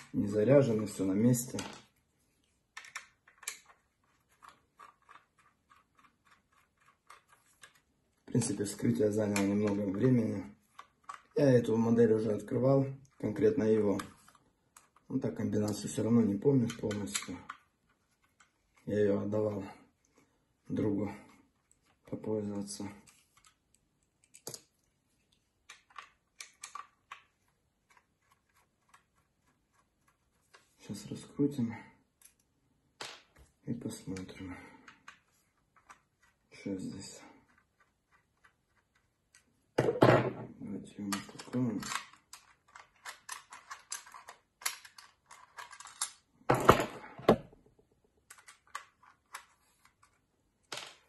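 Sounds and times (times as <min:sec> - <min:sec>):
screwdriver clicking and scraping: 0:41.1 - 0:46.2.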